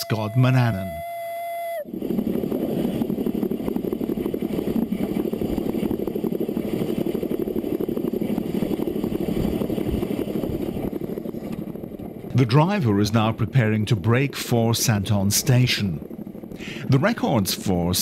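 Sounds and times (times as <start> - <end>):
steam locomotive running: 0.0 - 1.0
clatter of wheels: 4.4 - 12.4.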